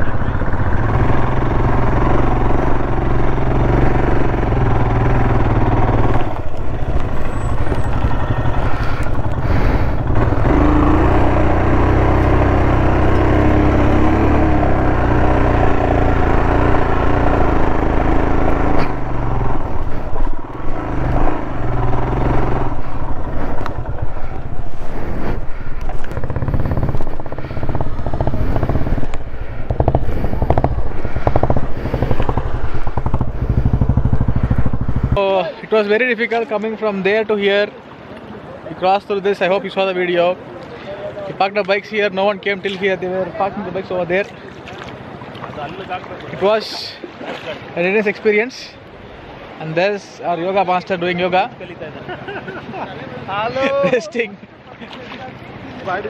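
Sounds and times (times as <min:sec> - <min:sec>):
motorcycle engine running: 0:00.0 - 0:35.4.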